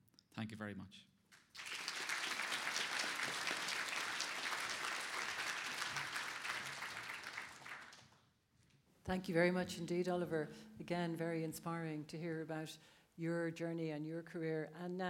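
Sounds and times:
audience applauding: 1.4 - 8.2.

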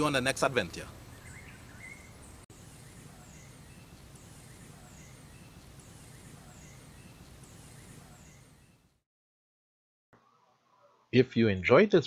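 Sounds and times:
soft bird chirps: 1.1 - 9.0.

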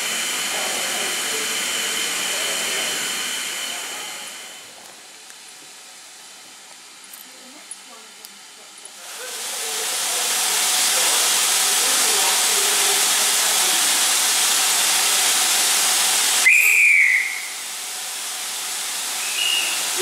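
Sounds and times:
steam hissing: 0.0 - 7.0, 8.2 - 20.0
whistle blast: 16.4 - 17.6, 19.2 - 20.0.

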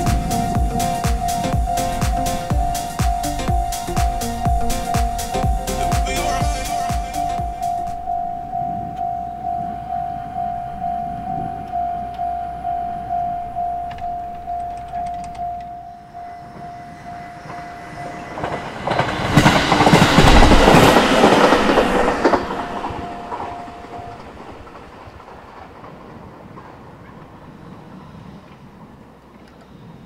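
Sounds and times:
train wheels clacking: 0.0 - 8.2, 16.5 - 28.7
level crossing bell ringing: 0.0 - 18.5.

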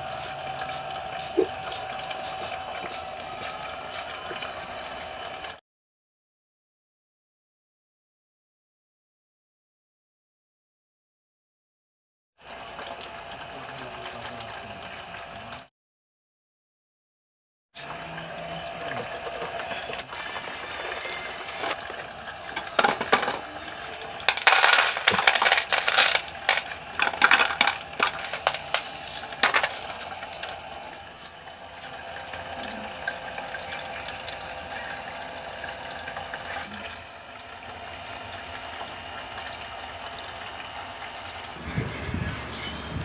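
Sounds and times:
trickle of running water: 0.0 - 5.6, 12.4 - 15.7, 17.8 - 41.6
stones clattering into plastic basin: 22.6 - 23.5, 24.3 - 29.9.

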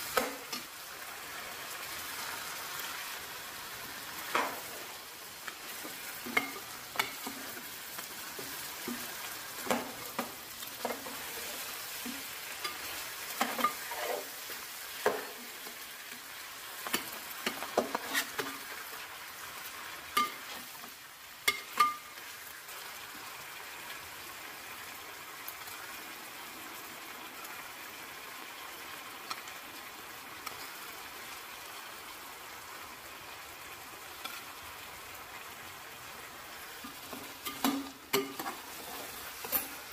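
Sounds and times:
food sizzling in hot oil: 0.0 - 39.9
metal spoon scraping pot: 12.6 - 14.4, 17.5 - 18.5.

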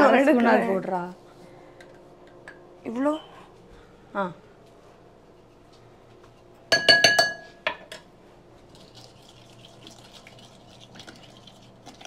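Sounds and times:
soft scraping and stirring: 4.6 - 6.7
utensil clinking on bowl: 6.7 - 7.8.

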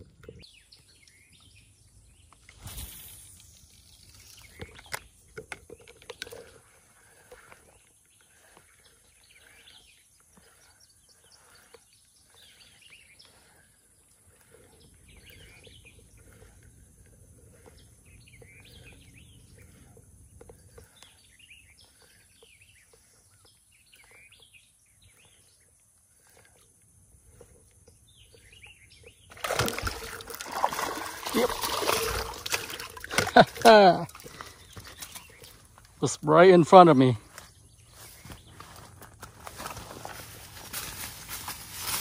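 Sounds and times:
birds chirping: 0.0 - 41.7
loud splash: 29.4 - 33.7.

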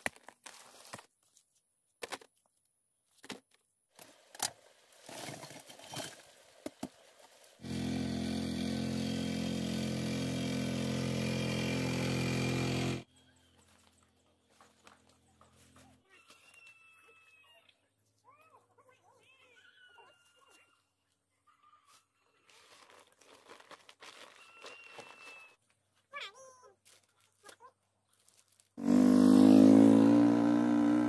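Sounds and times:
small engine running: 7.6 - 13.1, 28.8 - 31.0.

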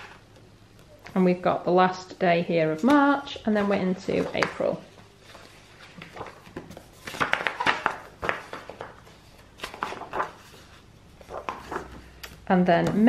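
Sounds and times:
paper pages flipping: 3.6 - 12.4.

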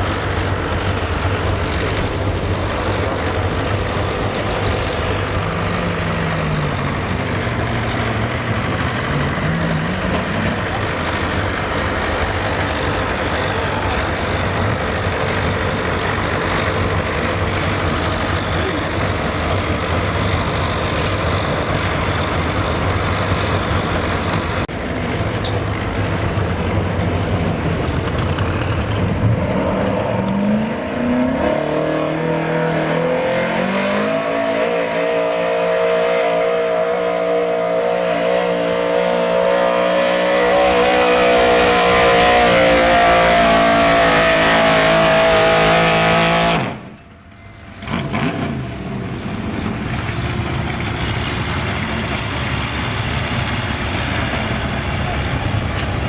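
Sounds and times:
engine running low: 0.0 - 56.0
truck engine revving: 0.0 - 56.0.

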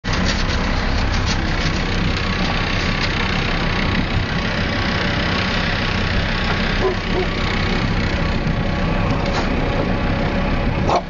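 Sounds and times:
motorboat engine humming: 0.0 - 11.0.

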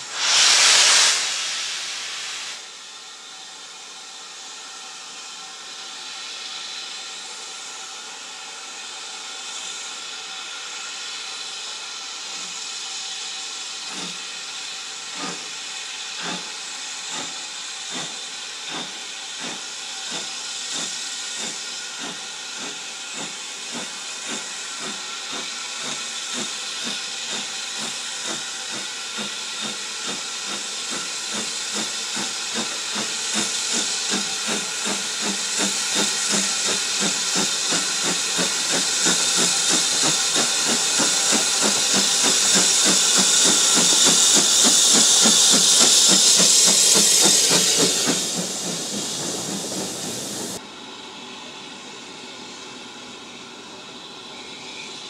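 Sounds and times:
steam hissing from drain cocks: 0.0 - 2.8, 12.4 - 50.6
steam locomotive exhaust beats: 0.0 - 55.0.

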